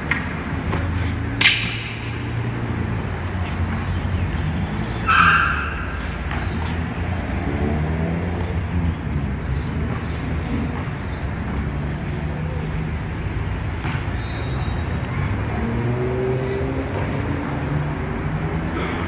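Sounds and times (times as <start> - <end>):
wooden staff striking concrete: 1.3 - 2.8.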